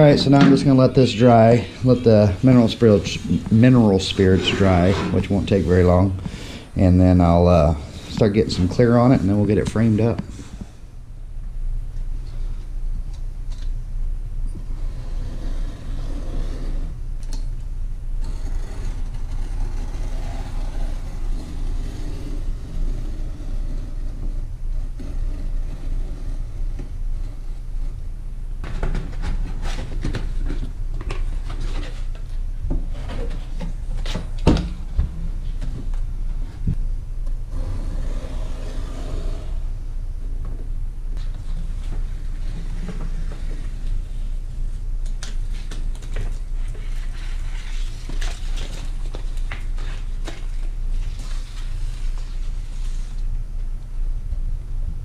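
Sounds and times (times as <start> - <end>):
steady low rumble: 0.0 - 15.1.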